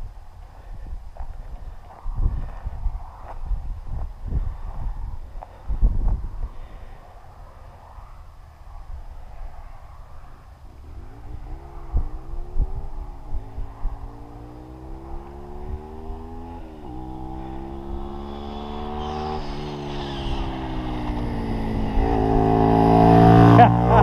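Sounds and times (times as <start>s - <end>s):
motorcycle engine accelerating: 10.7s - 24.0s.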